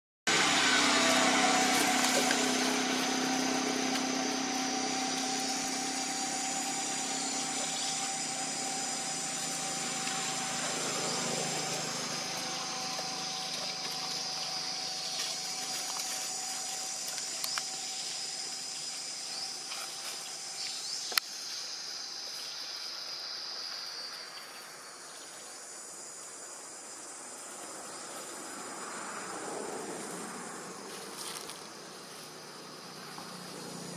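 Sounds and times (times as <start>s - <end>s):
low steady hum: 0.3s - 21.2s
high-pitched insect drone: 0.3s - 33.9s.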